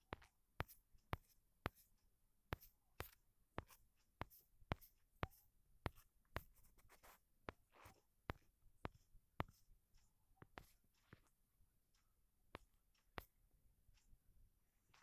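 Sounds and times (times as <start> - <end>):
faint sharp taps: 2.5 - 14.2.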